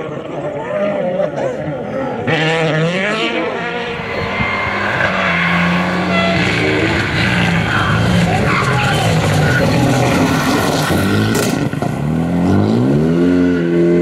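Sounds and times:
rally car engine at full throttle: 0.0s - 14.0s.

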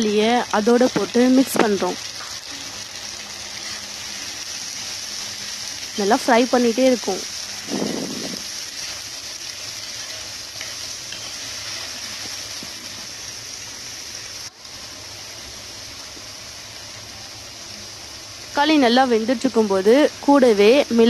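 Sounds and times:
vegetables sizzling in a frying pan: 0.0s - 21.0s
spatula stirring: 7.6s - 13.0s.

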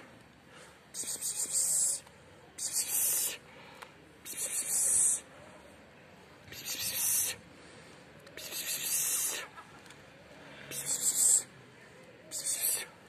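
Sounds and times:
cat hissing: 6.6s - 7.3s, 10.7s - 11.5s.

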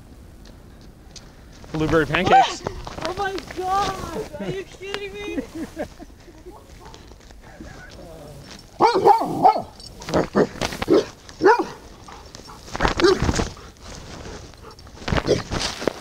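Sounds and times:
dog barking: 6.5s - 7.1s, 8.8s - 12.3s, 12.9s - 13.4s.

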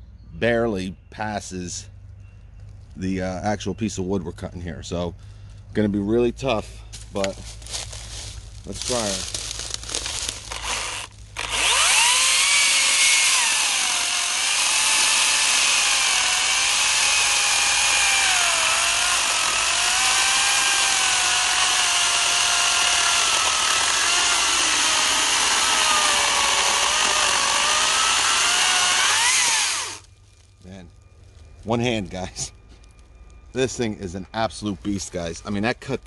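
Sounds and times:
chainsaw cutting through log: 8.8s - 30.1s.

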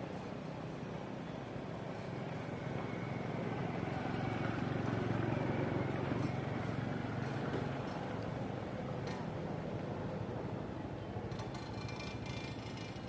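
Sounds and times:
motor engine humming: 1.5s - 9.0s.

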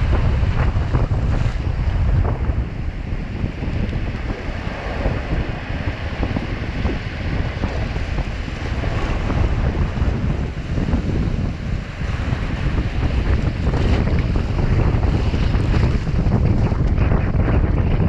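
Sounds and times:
ocean surf breaking: 0.0s - 18.0s
wind rumble on microphone: 0.0s - 18.0s.

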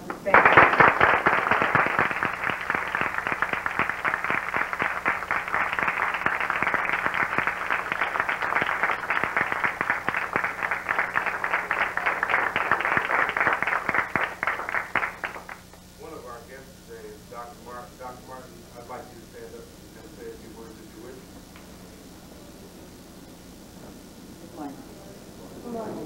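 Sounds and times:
audience applauding: 0.0s - 15.8s
faint steady hum: 0.0s - 26.0s.

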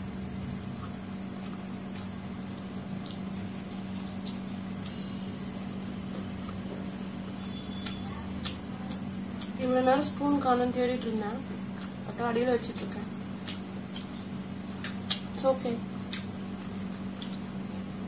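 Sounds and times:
machine hum: 0.0s - 18.0s
clicks from handling food: 13.4s - 15.4s, 16.0s - 17.8s.

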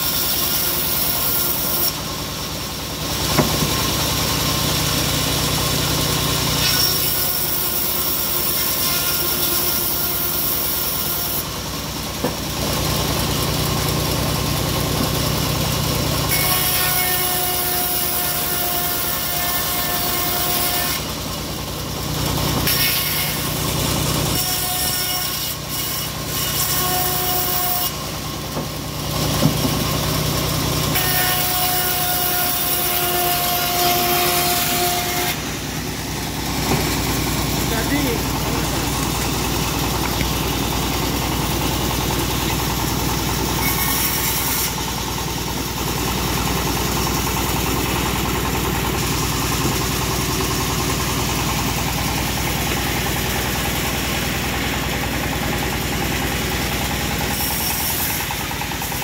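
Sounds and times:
band saw blade rasping through wood: 0.0s - 2.0s, 6.4s - 11.5s, 16.3s - 21.1s, 22.5s - 28.0s, 30.9s - 35.5s, 36.4s - 45.0s, 56.8s - 59.0s
stationary engine running: 0.1s - 8.6s, 9.7s - 24.8s, 25.8s - 59.0s.

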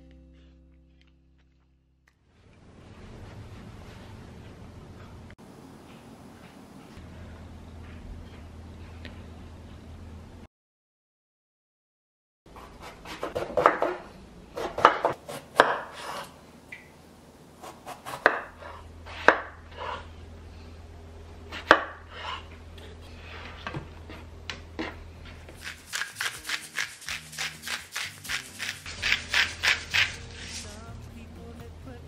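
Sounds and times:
knife chopping on wooden board: 12.6s - 14.0s, 14.6s - 16.2s, 17.6s - 19.6s, 25.5s - 30.2s.

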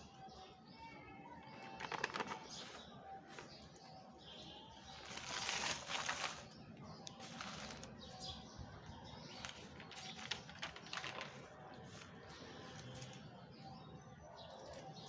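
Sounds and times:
notebook pages rustling: 1.6s - 3.8s, 4.9s - 8.2s, 9.2s - 13.3s.

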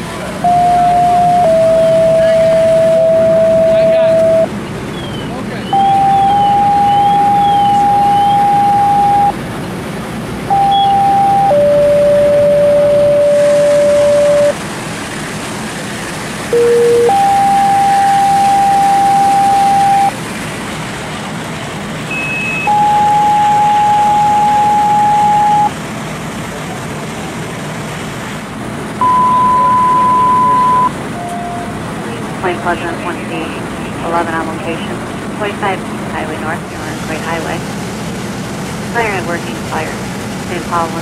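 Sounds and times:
two-tone paging tones over radio: 0.4s - 4.5s, 5.7s - 9.4s, 10.5s - 14.6s, 16.6s - 20.2s, 22.1s - 25.7s, 29.0s - 31.7s
radio background hiss: 32.0s - 37.6s, 38.9s - 41.0s.

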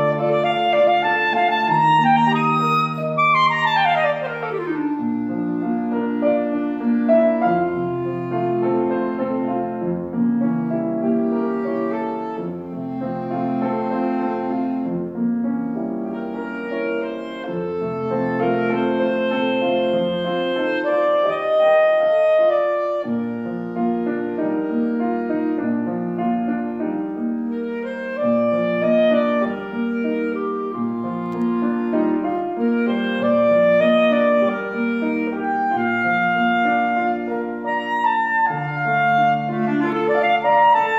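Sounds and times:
clarinet melody: 0.0s - 40.9s
piano accompaniment: 0.0s - 40.9s.

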